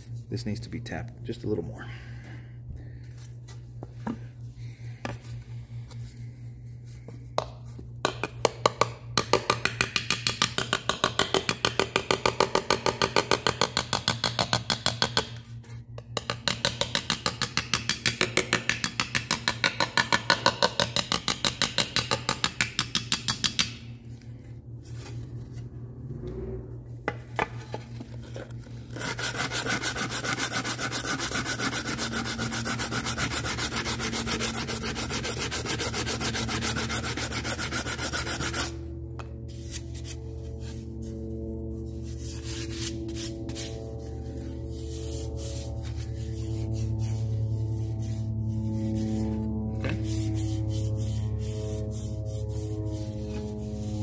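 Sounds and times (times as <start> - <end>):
sanding block rasping on aluminum: 28.9 - 38.8, 44.6 - 54.0.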